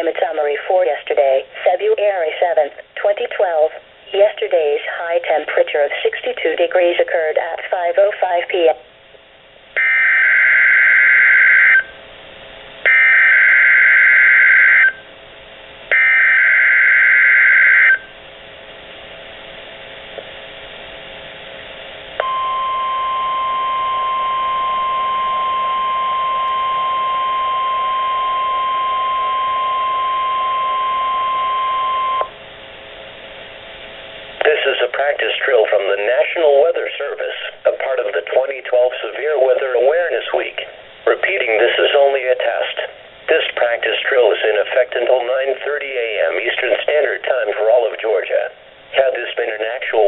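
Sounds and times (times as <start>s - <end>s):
radio hiss: 0.0s - 8.8s, 33.8s - 50.0s
steady warning alarm tone: 9.8s - 12.0s, 12.9s - 15.1s, 15.9s - 18.2s, 22.2s - 32.4s.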